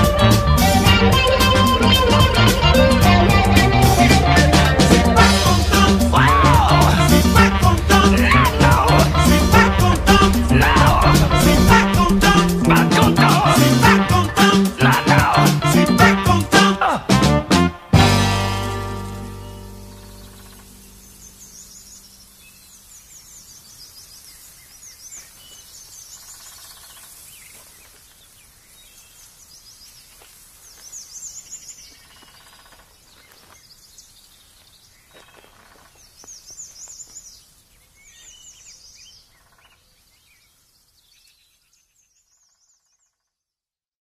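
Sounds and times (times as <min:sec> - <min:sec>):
steady high hiss: 0:00.0 - 0:16.1, 0:18.1 - 0:32.7
birds chirping in trills: 0:18.4 - 0:43.4.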